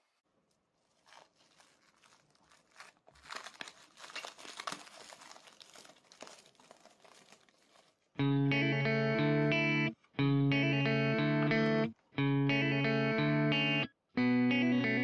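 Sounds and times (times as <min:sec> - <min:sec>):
cling wrap crinkling: 0:00.0 - 0:08.2.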